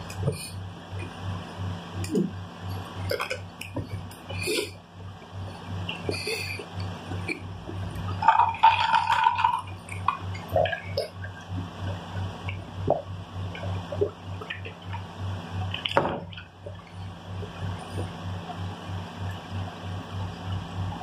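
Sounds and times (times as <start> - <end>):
low pulsing hum: 0.0 - 21.0
gulping from a cup: 2.0 - 4.8, 5.6 - 13.1.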